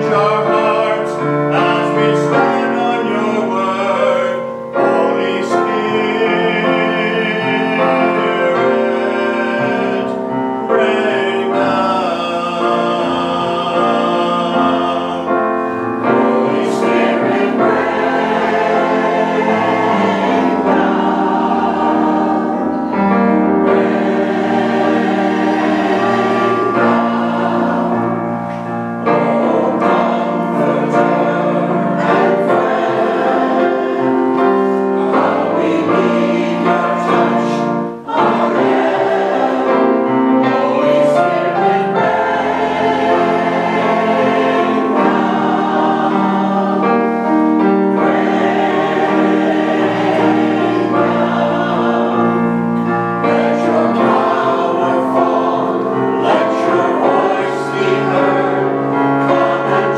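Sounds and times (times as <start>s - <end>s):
mixed choir singing a hymn: 0.0s - 59.9s.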